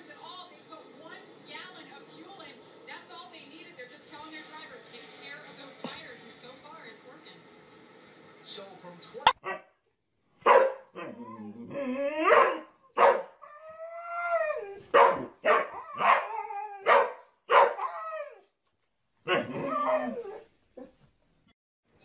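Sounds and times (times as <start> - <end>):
dogs barking: 9.3 - 9.7, 10.4 - 11.2, 12.2 - 13.4, 14.9 - 17.9, 19.2 - 19.8
dogs howling: 11.0 - 18.4, 19.3 - 20.5.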